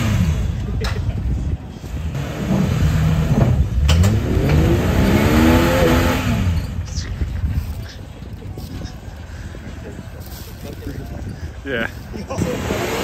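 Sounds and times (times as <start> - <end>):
engine revving under load: 0.0 - 0.6, 2.0 - 6.8, 12.4 - 13.0.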